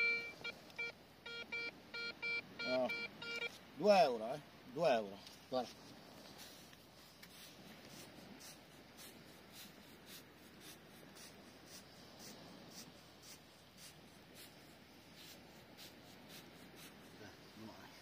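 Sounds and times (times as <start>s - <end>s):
footsteps crunching in sand: 5.3s - 10.9s.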